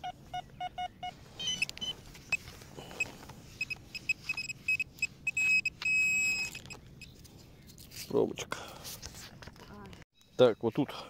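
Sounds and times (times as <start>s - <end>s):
pinpointer high beeps: 0.0s - 2.4s, 3.6s - 7.1s
pinpointer lower beeps: 0.0s - 2.4s, 3.6s - 7.1s.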